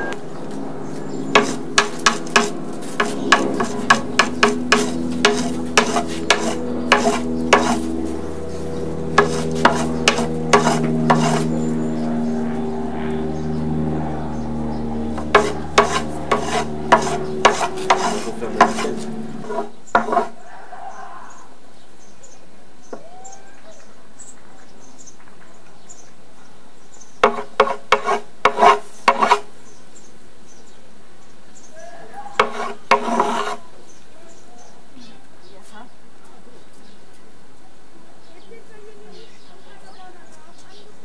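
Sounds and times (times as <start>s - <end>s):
low hum: 0.0s - 20.4s
wooden knife beating on a board: 1.4s - 7.8s, 9.2s - 11.4s, 15.2s - 18.9s, 27.2s - 29.4s.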